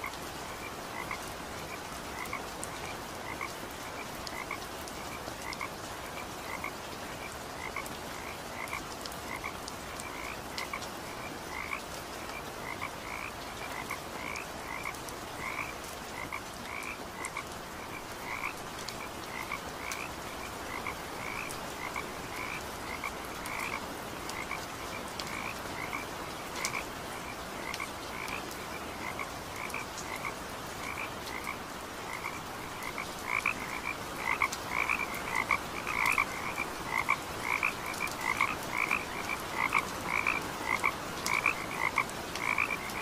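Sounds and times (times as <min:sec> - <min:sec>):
frogs calling: 0:11.5 - 0:43.0.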